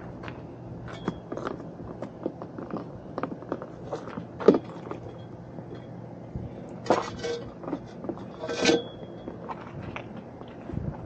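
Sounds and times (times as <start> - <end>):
metal pipe clanking: 6.8 - 9.3.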